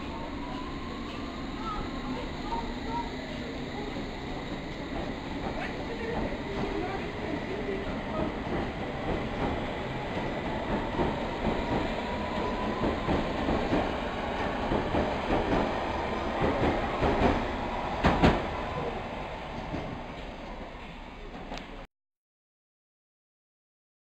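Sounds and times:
train wheels clattering: 1.0 - 21.8.

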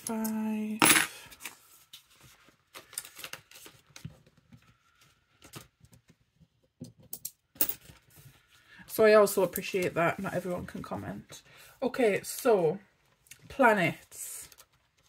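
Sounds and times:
coins clicking and clinking: 0.8 - 1.1
plastic binder pocket crinkling: 1.4 - 5.9.

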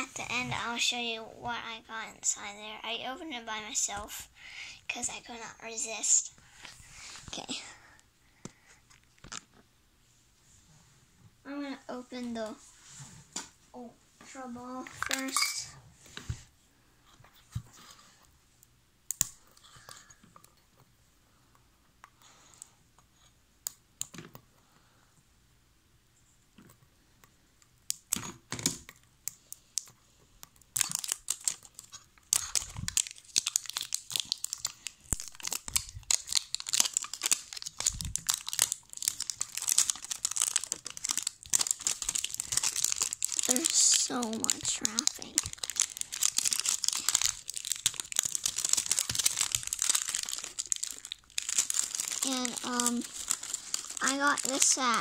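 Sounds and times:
plastic wrapping crinkling and tearing: 30.6 - 55.0.

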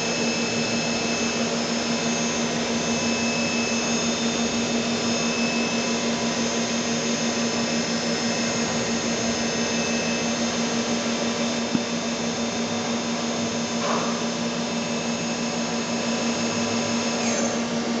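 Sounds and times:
machining centre humming: 0.0 - 18.0.

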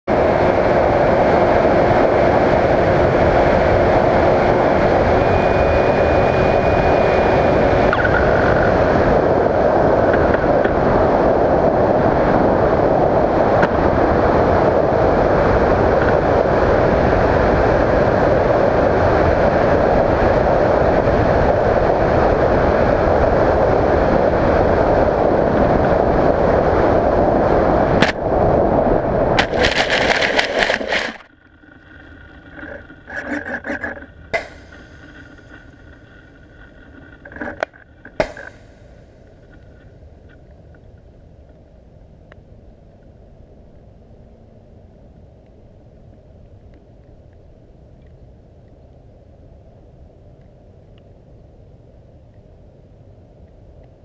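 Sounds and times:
thin electric motor whine: 0.1 - 10.9
rush of airflow: 0.1 - 39.8.

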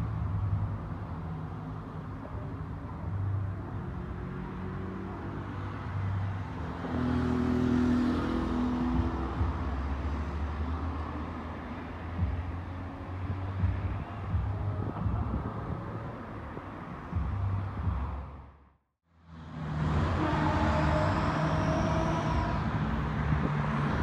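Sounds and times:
diesel locomotive engine drone: 8.7 - 24.0.

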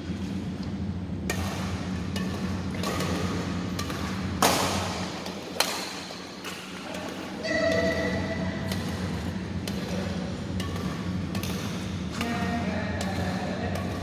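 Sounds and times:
steady low hum: 0.0 - 14.0
rackets hitting shuttlecock: 1.2 - 14.0.

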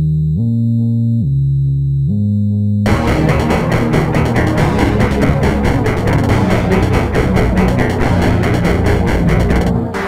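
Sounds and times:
low synthesizer tone: 2.9 - 10.0.

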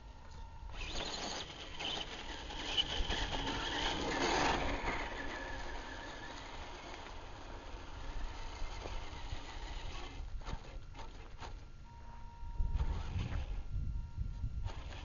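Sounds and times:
tyres crunching gravel: 0.7 - 11.7
wind rumble on microphone: 7.7 - 15.0.

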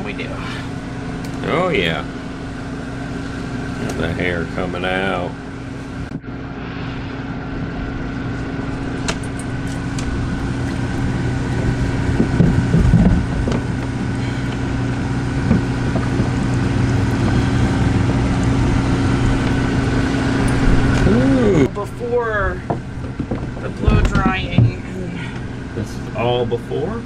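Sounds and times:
pump humming: 7.2 - 27.0
water spraying from hose: 9.6 - 21.6.

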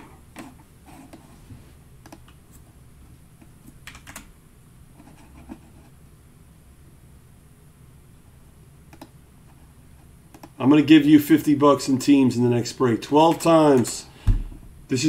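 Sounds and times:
computer keyboard and mouse clicks: 2.0 - 2.4, 3.4 - 4.3, 8.9 - 9.2, 10.3 - 10.6.

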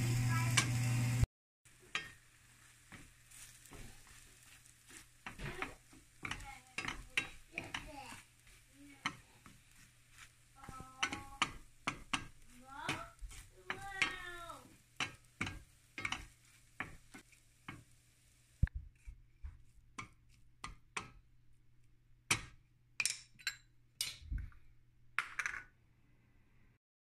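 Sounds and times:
wooden spatula scraping frying pan: 1.7 - 18.3.

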